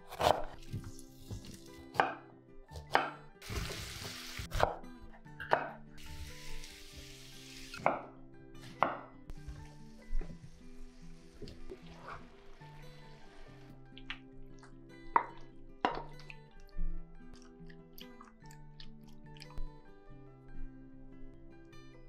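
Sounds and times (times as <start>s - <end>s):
soft background music: 0.0s - 22.0s
knife chopping on wooden board: 0.1s - 3.7s
oil sizzling in a frying pan: 3.4s - 4.5s, 6.0s - 7.8s.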